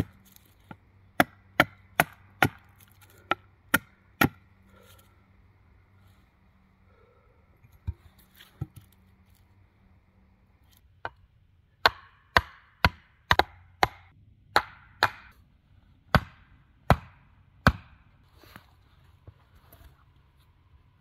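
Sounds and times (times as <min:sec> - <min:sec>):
stake being hammered: 0:01.2 - 0:04.4, 0:11.8 - 0:15.3, 0:16.1 - 0:18.0.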